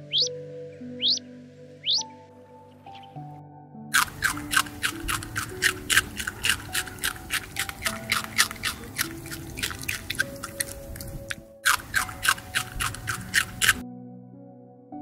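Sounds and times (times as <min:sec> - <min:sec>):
animals chewing grass: 0:04.0 - 0:13.8.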